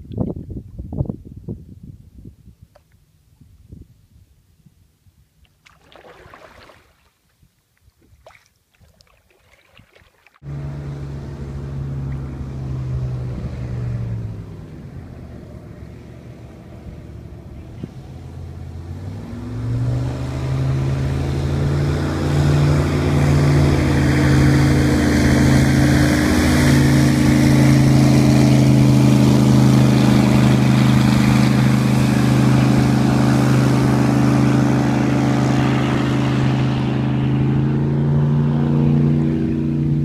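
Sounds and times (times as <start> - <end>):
airboat engine drone: 10.4 - 40.0.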